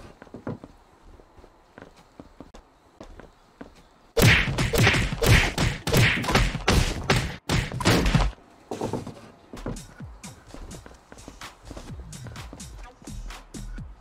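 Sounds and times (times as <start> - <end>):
footsteps down wooden stairs: 0.0 - 3.9, 8.0 - 12.8.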